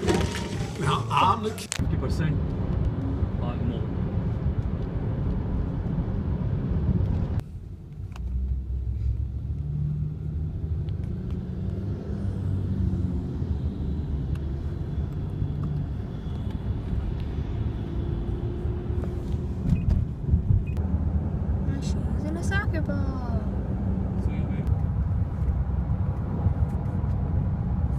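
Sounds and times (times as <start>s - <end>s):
car cabin road rumble: 0.0s - 11.8s, 13.0s - 27.9s.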